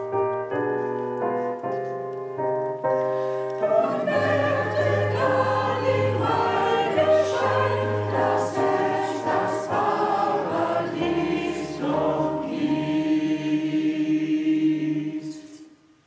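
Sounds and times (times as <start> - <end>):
digital piano accompaniment: 0.0 - 15.6
mixed choir singing: 3.6 - 15.7.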